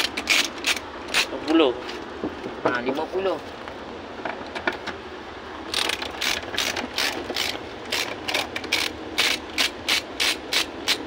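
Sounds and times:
ratchet wrench clicking: 0.0 - 1.3, 5.7 - 11.0.

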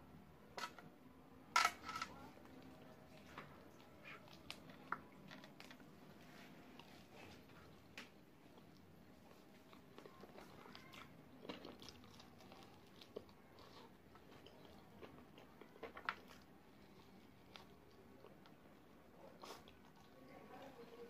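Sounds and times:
chewing and biting chicken wings: 8.6 - 18.6.

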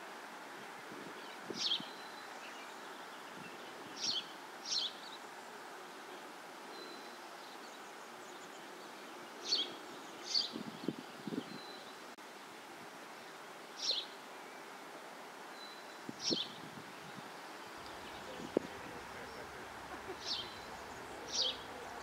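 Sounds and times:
steady soft hiss: 0.0 - 22.0
high bird chirps: 17.8 - 22.0.

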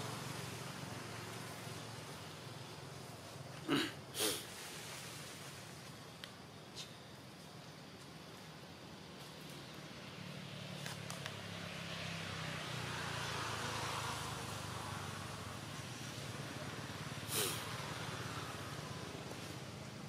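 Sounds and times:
vehicle passing: 0.0 - 3.5, 9.0 - 20.0.

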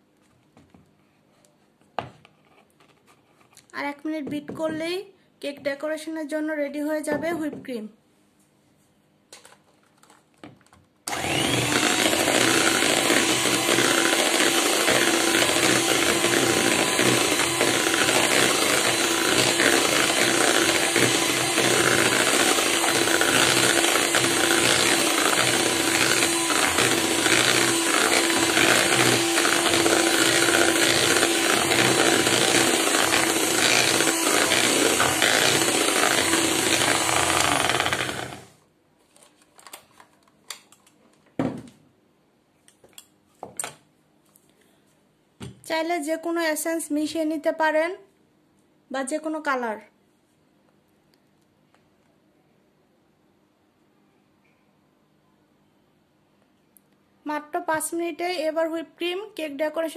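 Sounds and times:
electric hand mixer whipping cream: 11.1 - 38.5.

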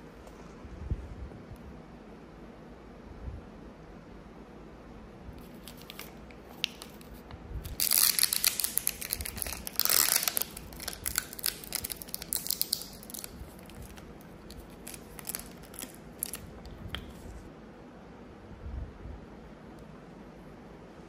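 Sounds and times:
plastic film crinkling and tearing: 5.4 - 16.6.

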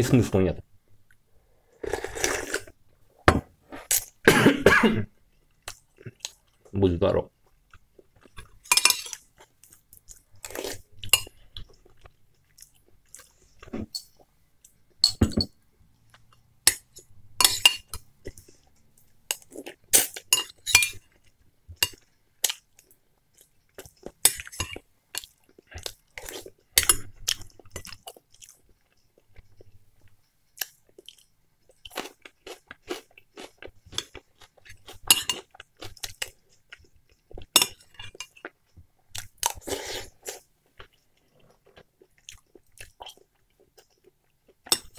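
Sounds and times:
person chewing soup: 1.0 - 2.8, 5.3 - 6.7, 7.4 - 15.2, 15.9 - 44.9
metal spoon clinking glass bowl: 16.7 - 18.0.

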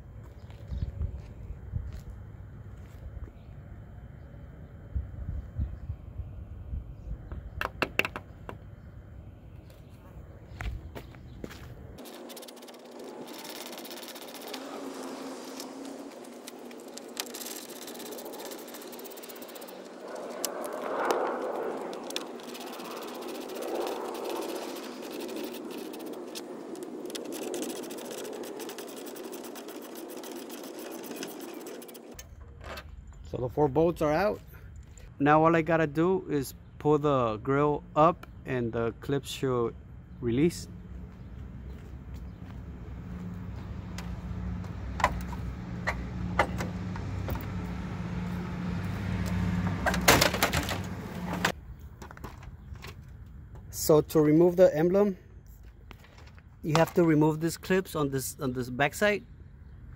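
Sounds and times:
low engine hum: 0.0 - 33.4, 39.7 - 51.8
steady rushing noise: 11.8 - 32.2.

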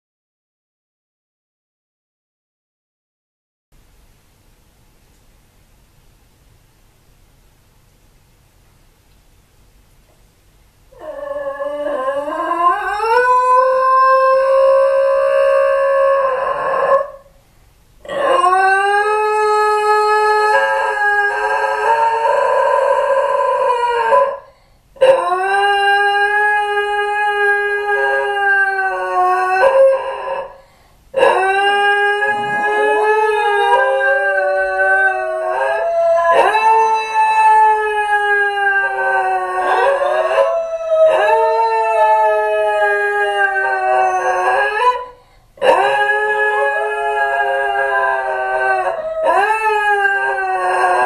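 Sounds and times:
dogs howling: 11.0 - 17.2, 18.0 - 30.6, 31.2 - 51.0.

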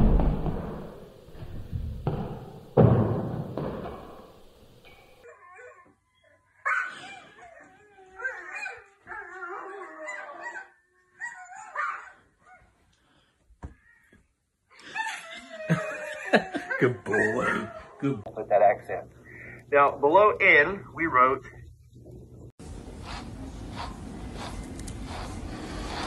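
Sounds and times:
loud thud: 0.0 - 5.2
puppy howling and whimpering: 5.2 - 12.6, 14.8 - 18.0.

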